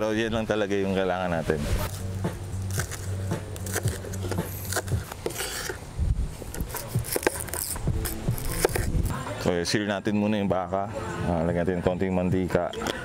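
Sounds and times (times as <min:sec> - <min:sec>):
knife chopping on cutting board: 0:08.3 - 0:08.9.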